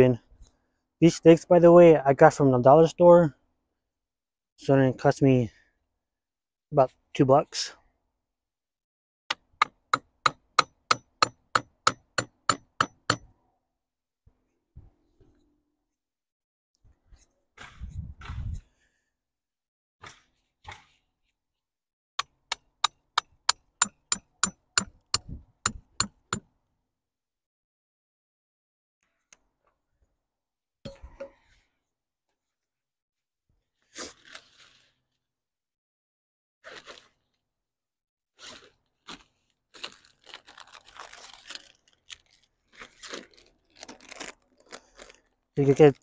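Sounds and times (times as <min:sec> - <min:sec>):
crunching and rustling: 0:38.4 - 0:46.0.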